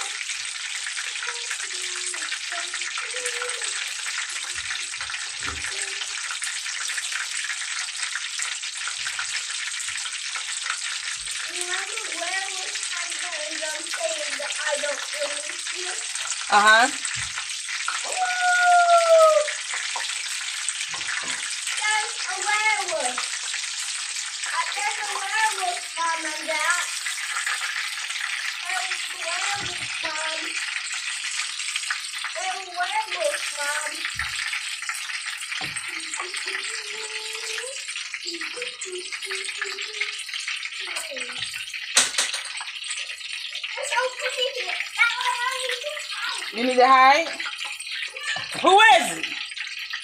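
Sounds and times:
oil sizzling in a skillet: 0:00.0 - 0:50.0
fork knocking against pan: 0:42.0 - 0:42.6.

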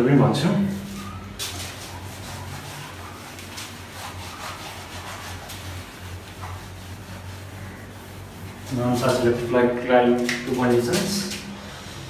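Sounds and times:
eraser rubbing on whiteboard: 0:00.7 - 0:09.5.

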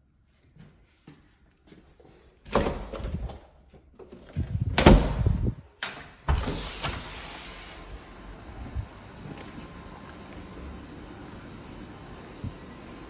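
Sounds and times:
door knocks and rattles: 0:04.3 - 0:05.6.

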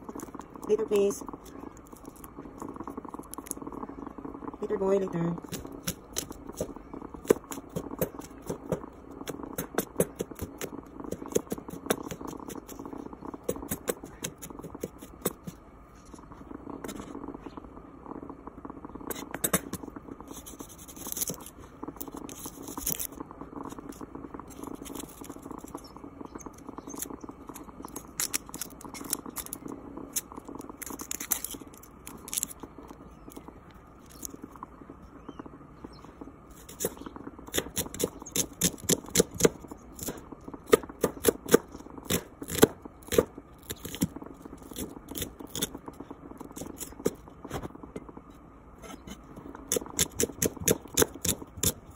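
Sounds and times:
low hum: 0:00.0 - 0:51.9.

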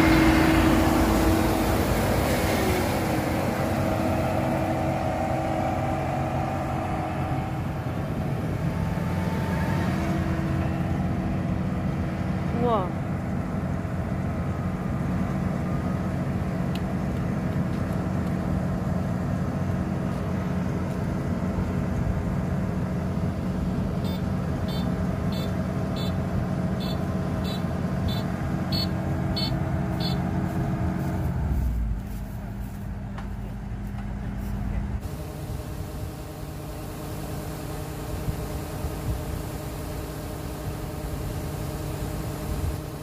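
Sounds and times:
combine harvester running: 0:00.0 - 0:43.0
short high beeps: 0:24.0 - 0:26.2, 0:26.8 - 0:30.2.

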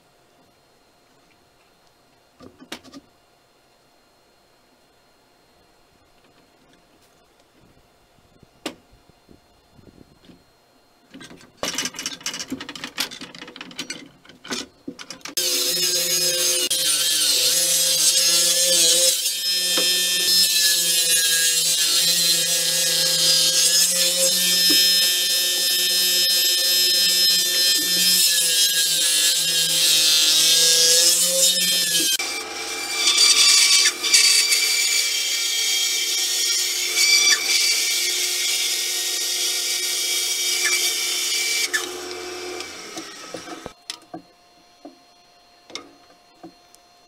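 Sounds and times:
machine whine with low hum: 0:00.0 - 0:16.8, 0:39.8 - 0:47.0
table saw cutting wood: 0:15.3 - 0:43.8.

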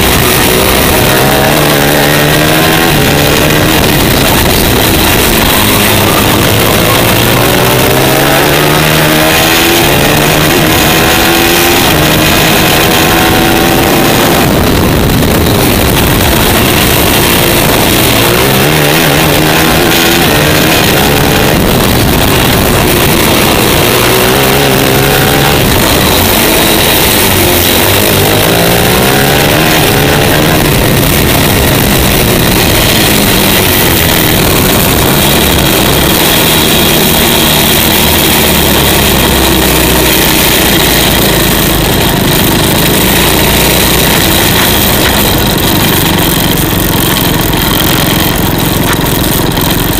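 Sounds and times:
kart engine at racing speed: 0:00.0 - 0:49.9.

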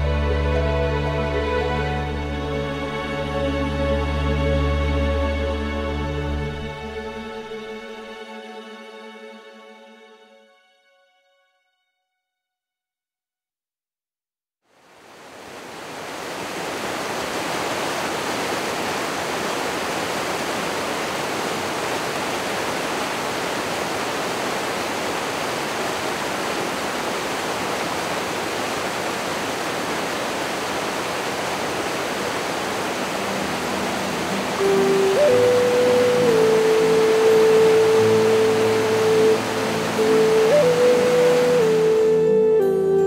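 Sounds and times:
rushing water: 0:00.0 - 0:08.4, 0:14.7 - 0:43.0
sustained musical tones: 0:00.0 - 0:08.9, 0:33.1 - 0:43.0.

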